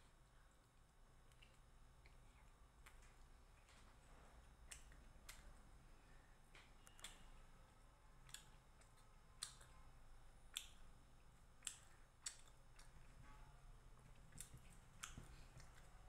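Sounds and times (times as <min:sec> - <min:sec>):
wet lip smacks and clicks: 0:01.2 - 0:03.8, 0:04.5 - 0:05.5, 0:06.8 - 0:07.3, 0:08.2 - 0:09.8, 0:10.5 - 0:13.1, 0:14.2 - 0:15.9.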